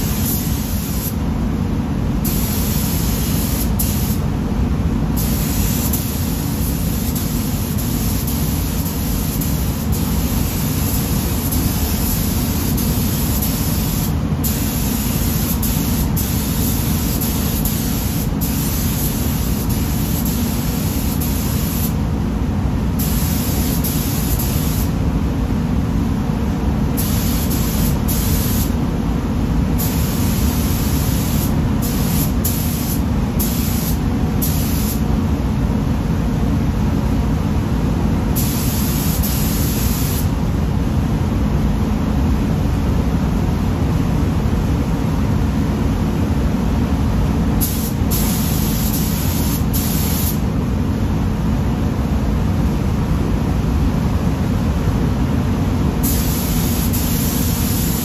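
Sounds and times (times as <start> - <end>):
paint spray gun hissing: 0.0 - 1.2, 2.2 - 4.3, 5.2 - 22.0, 23.0 - 25.0, 27.0 - 28.8, 29.8 - 35.0, 38.4 - 40.3, 47.6 - 50.4, 56.0 - 58.0
steady low rumble: 0.0 - 57.8.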